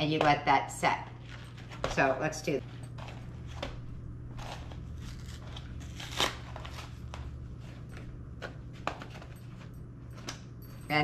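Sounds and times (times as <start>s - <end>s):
low steady hum: 0.0s - 11.0s
cardboard packaging crinkling: 2.9s - 7.7s.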